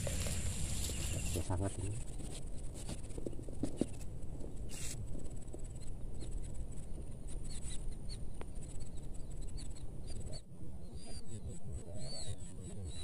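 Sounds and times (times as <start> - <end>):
footsteps on grass: 0.0 - 3.7
weeds rustling: 0.0 - 4.0
steady low rumble: 0.0 - 12.9.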